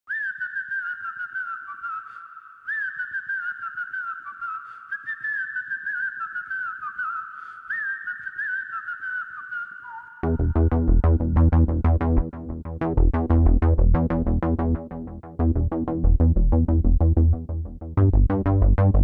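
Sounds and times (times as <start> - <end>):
whistle-like electronic melody: 7.8 - 19.0.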